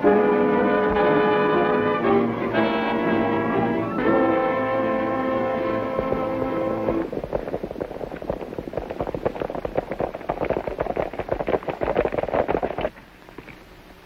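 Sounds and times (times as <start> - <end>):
horses galloping hoofbeats: 3.2 - 13.6.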